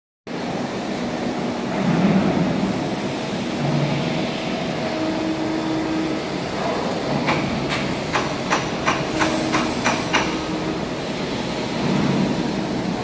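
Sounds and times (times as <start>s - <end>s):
press brake humming: 5.0s - 11.1s.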